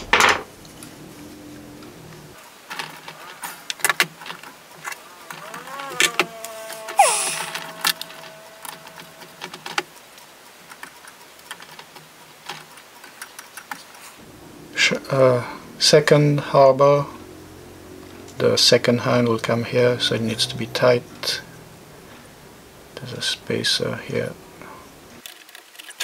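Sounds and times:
wavering gliding tone: 5.7s - 9.4s.

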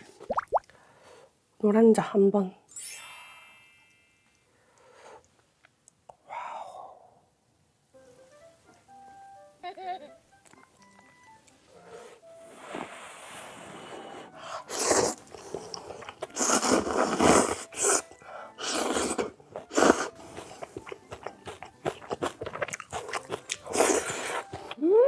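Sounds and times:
wet noodle slurping: 12.6s - 24.7s
chewing: 14.7s - 24.8s.

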